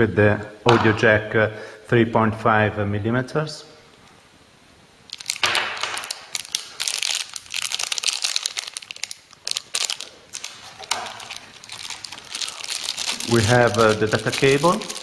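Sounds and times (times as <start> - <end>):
plastic bags crinkling: 5.1 - 15.0.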